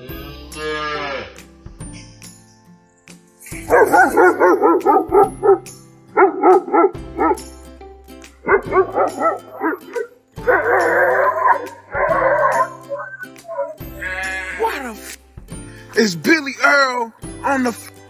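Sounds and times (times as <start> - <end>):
dog barking: 3.6 - 7.6, 8.4 - 13.8.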